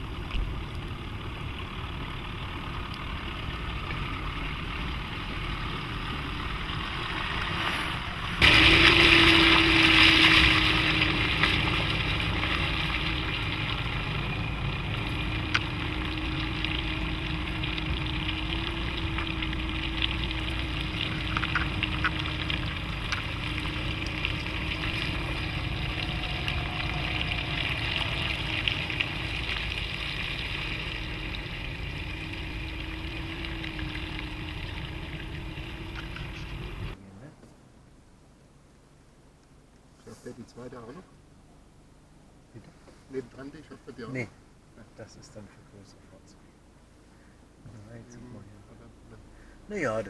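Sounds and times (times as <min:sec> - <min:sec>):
tyres crackling over wet ground: 0:00.0 - 0:37.0
diesel engine at low revs: 0:00.0 - 0:40.0.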